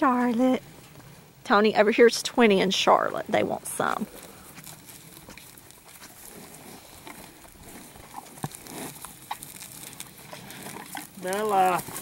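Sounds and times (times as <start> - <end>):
cattle rustling: 2.9 - 12.0.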